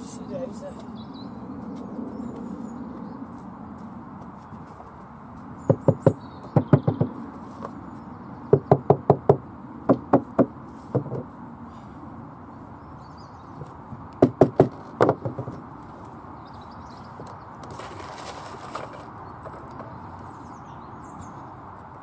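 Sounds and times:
hammer knocking on timber: 5.7s - 7.2s, 8.5s - 11.3s, 14.2s - 15.5s.

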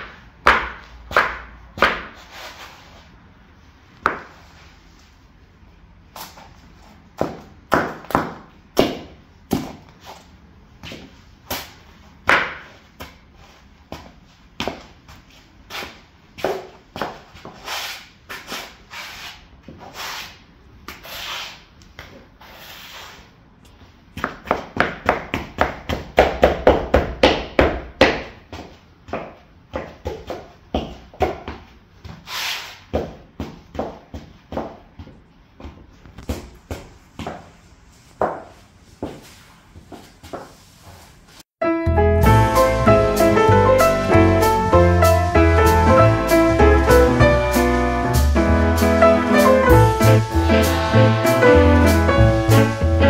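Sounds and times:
heels clicking on tile floor: 32.9s - 40.6s.

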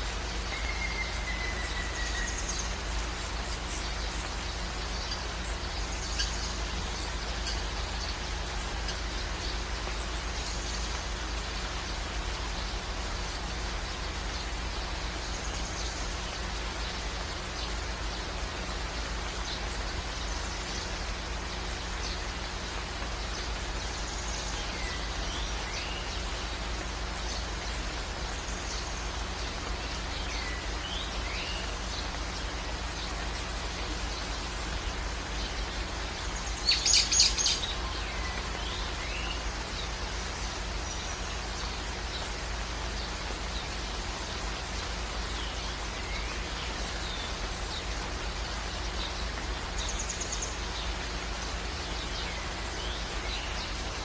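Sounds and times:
faint bird chirps: 0.0s - 11.1s
background hiss: 0.0s - 54.0s
rapid high bird chirps: 18.9s - 54.0s.

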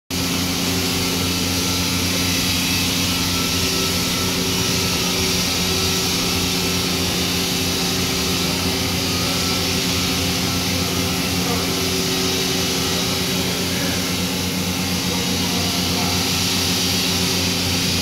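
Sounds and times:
crane engine running: 0.2s - 18.0s.

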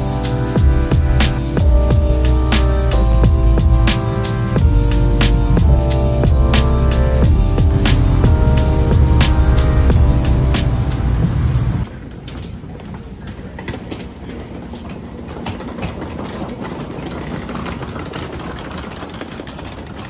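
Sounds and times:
background music: 0.0s - 11.9s
railway station rumble: 0.0s - 12.2s.

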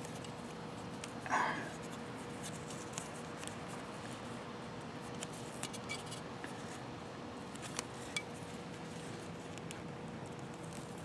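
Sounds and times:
low steady hum: 0.0s - 11.0s
electrical tape crinkling: 7.5s - 11.0s.

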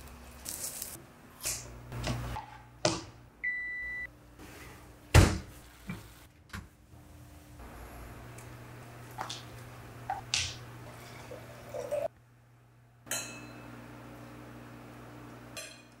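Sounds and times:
wine glugging into a glass: 11.0s - 12.1s
wine glasses clinking: 13.1s - 13.6s.

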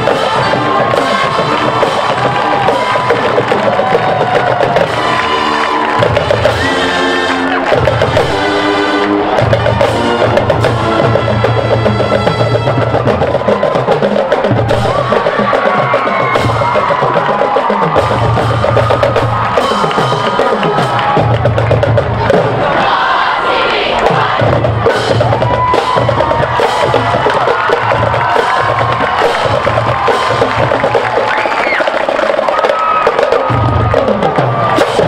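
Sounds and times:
brass chords: 0.0s - 13.5s
busy drumline: 0.0s - 35.0s.

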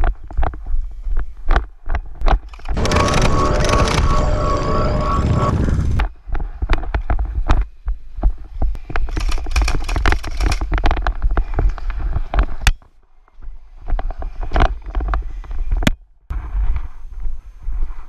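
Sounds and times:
gear rattling: 2.4s - 6.0s
low microphone rumble: 2.5s - 6.7s.

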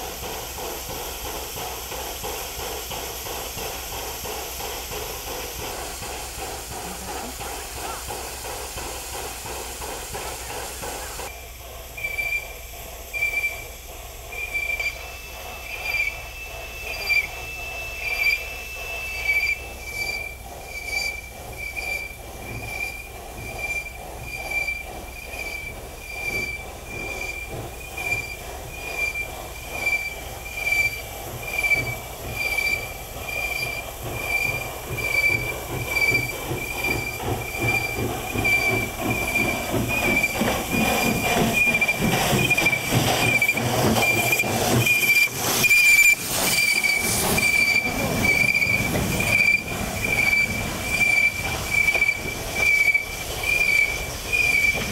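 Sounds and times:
steam locomotive moving slowly: 0.0s - 54.9s
wheels squealing rhythmically: 12.0s - 54.9s.

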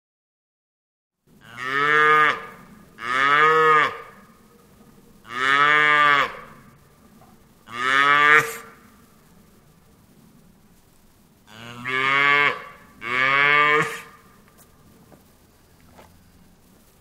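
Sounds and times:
cow mooing: 1.4s - 4.2s, 5.3s - 6.7s, 7.7s - 8.8s, 11.5s - 14.2s.

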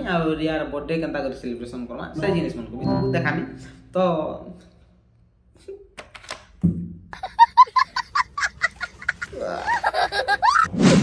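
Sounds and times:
squeaky cartoon sobbing effect: 9.2s - 10.0s.

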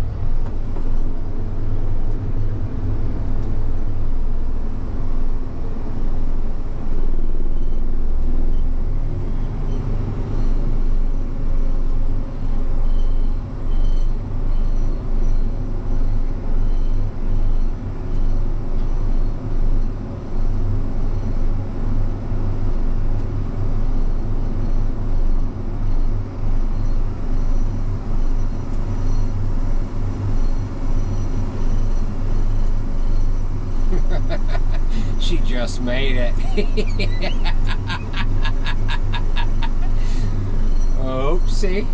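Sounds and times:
vehicle engine droning: 0.0s - 41.9s.

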